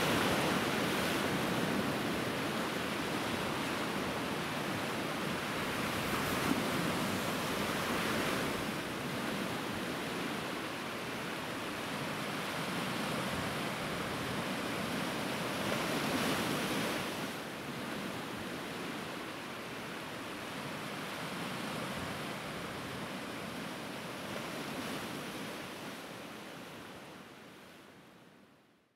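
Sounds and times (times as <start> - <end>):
sea surf washing: 0.0 - 17.4
wind: 0.0 - 28.9.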